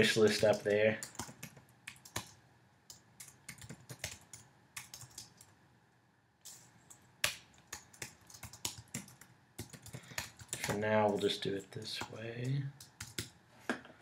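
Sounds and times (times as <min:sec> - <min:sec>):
keyboard typing: 0:00.1 - 0:05.6, 0:06.5 - 0:13.4.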